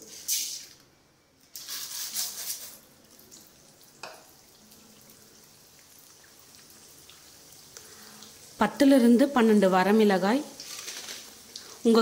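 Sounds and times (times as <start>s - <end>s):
lentils sizzling in hot oil: 0.0s - 0.8s, 4.0s - 12.0s.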